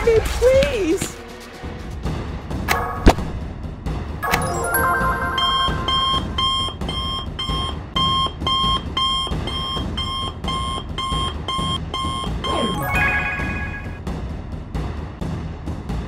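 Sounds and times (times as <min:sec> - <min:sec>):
electronic chime: 0:04.2 - 0:07.2, 0:12.4 - 0:14.0
rapid repeating beeps: 0:04.9 - 0:14.0.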